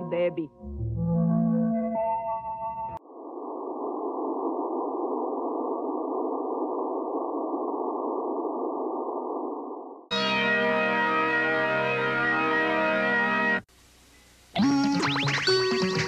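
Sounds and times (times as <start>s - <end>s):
music: 0.0s - 3.0s, 10.1s - 13.6s, 14.6s - 16.0s
muffled droning hiss: 13.6s - 14.6s.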